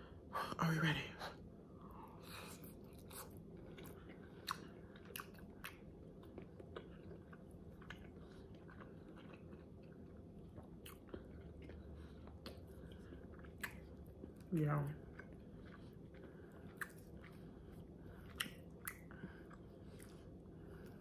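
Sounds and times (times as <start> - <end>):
person chewing food: 1.7 - 21.0.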